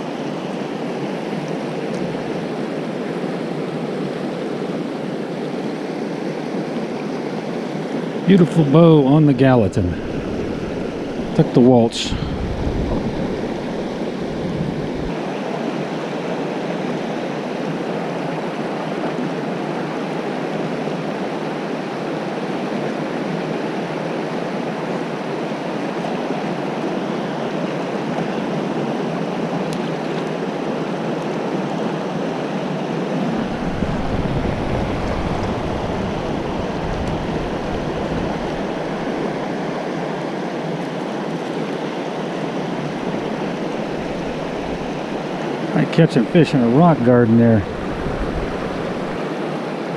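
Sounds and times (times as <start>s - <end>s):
river rapids rushing: 7.5s - 20.5s, 32.4s - 49.9s
low rumble: 9.4s - 15.1s, 33.3s - 39.4s, 43.0s - 45.4s, 47.1s - 49.2s.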